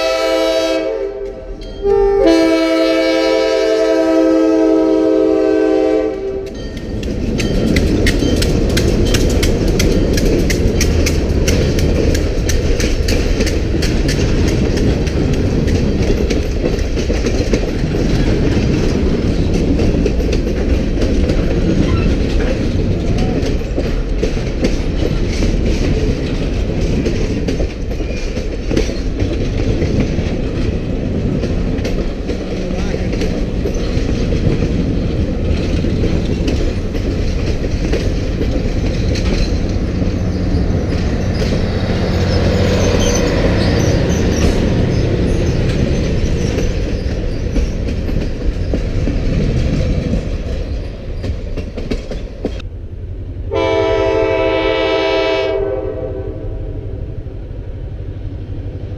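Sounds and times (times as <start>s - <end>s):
locomotive air horn blast: 0.0s - 6.5s, 53.5s - 57.1s
train rumbling past: 0.0s - 58.9s
train wheels clicking on rails: 3.1s - 55.6s.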